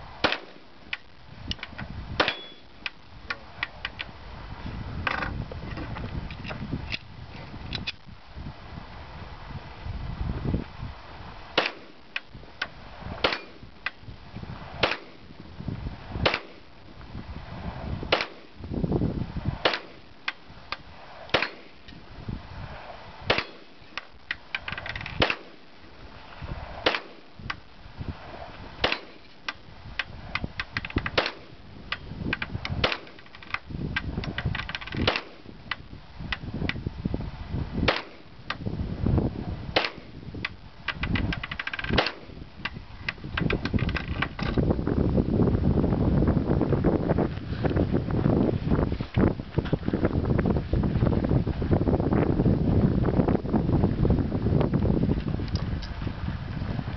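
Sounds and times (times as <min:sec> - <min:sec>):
faint gunshot cracks: 0:11.6 - 0:11.9, 0:18.1 - 0:18.4, 0:26.8 - 0:27.2
pistol shots: 0:11.6 - 0:12.0, 0:13.2 - 0:13.6, 0:14.8 - 0:15.2, 0:16.2 - 0:16.6, 0:18.1 - 0:18.5, 0:19.6 - 0:20.0, 0:21.3 - 0:21.8, 0:23.3 - 0:23.7, 0:26.8 - 0:27.2, 0:28.8 - 0:29.2, 0:31.1 - 0:31.5, 0:37.9 - 0:38.2.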